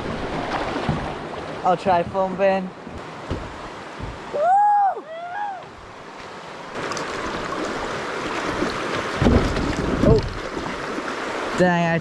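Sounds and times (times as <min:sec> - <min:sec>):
river rapid rushing: 0:00.0 - 0:12.0
person shouting woo: 0:04.3 - 0:05.7.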